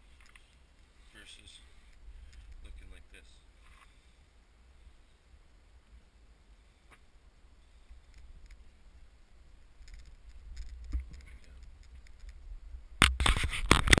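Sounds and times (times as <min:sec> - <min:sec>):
camera handling rumble: 0:09.8 - 0:12.4, 0:13.0 - 0:14.0.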